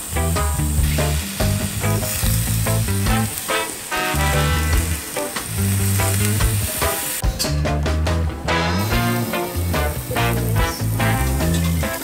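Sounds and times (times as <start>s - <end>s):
fish sizzling in oil: 0.0s - 7.2s, 8.6s - 12.0s
background music: 0.0s - 12.0s.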